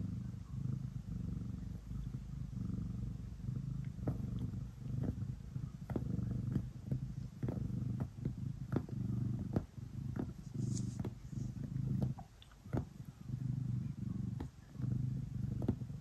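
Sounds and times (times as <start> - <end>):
cat purring: 0.0 - 16.0
soft ticks of paws kneading: 3.7 - 16.0.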